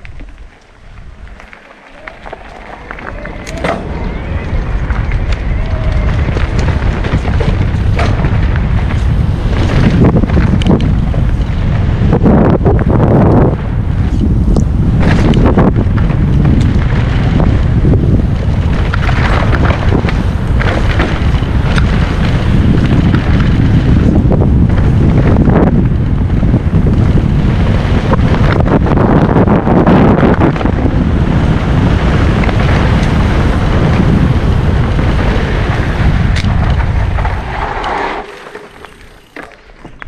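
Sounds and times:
tyres rumbling over dirt: 0.0s - 40.0s
wind buffeting microphone: 0.0s - 40.0s
sharp knocks from bike: 3.5s - 3.9s, 6.3s - 10.8s.

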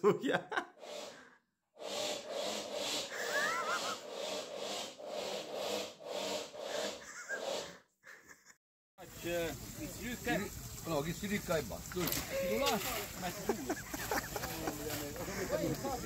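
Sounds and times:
rhythmic rubbing strokes: 0.8s - 1.2s, 1.8s - 7.8s, 12.8s - 16.0s.

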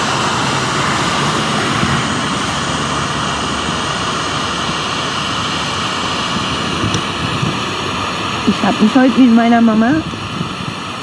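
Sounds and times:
static hiss from phone speaker: 0.0s - 11.0s.

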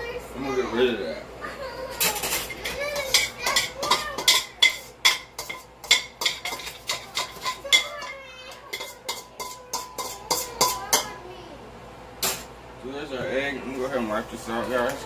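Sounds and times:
metal utensil scraping a pan: 2.0s - 11.1s.

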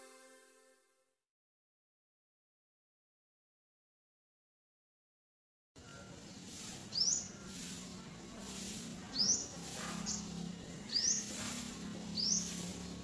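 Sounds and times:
bird chirping: 9.1s - 11.4s, 12.0s - 12.6s.

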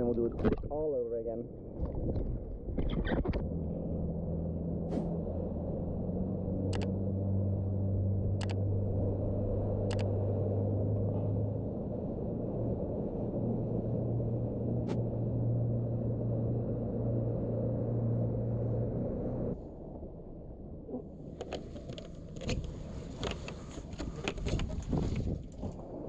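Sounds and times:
boat motor humming: 3.1s - 19.9s
sharp clicks: 6.7s - 6.9s, 8.4s - 8.6s, 9.9s - 10.1s.

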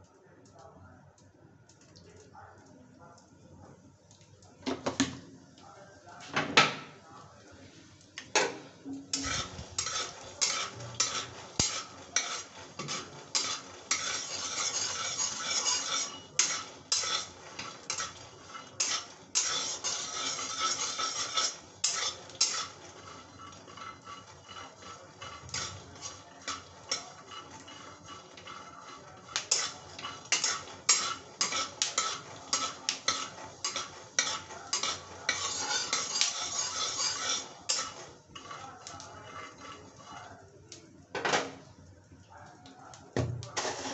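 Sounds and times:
metal spatula scraping pan: 8.4s - 40.5s, 43.4s - 43.9s
peanuts rattling in pan: 9.2s - 40.4s.

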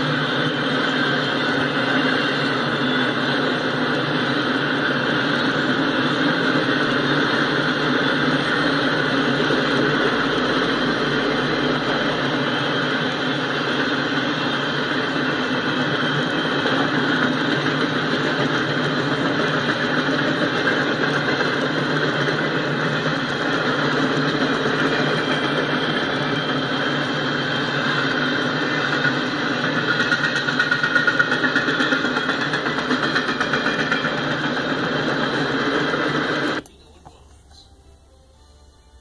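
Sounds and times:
freight train wheels rumbling on rails: 0.0s - 37.3s.

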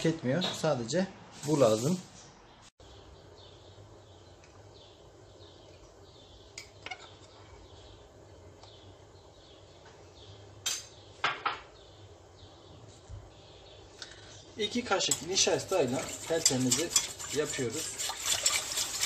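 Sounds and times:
metal spoon clinking on pot: 15.0s - 19.0s.

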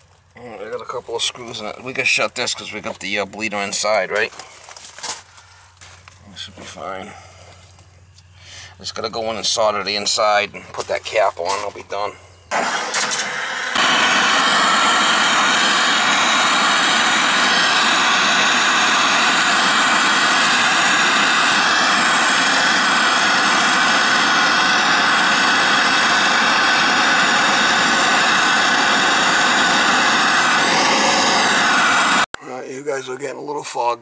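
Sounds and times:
gas torch roaring: 11.5s - 32.3s.

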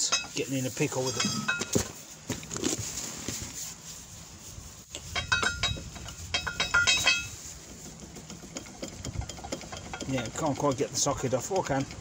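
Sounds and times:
ratchet clicking on metal bolt: 5.0s - 12.0s.

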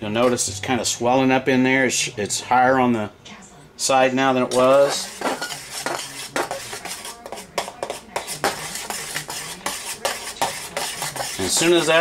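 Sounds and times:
knife scraping a steel saucepan: 4.4s - 12.0s.

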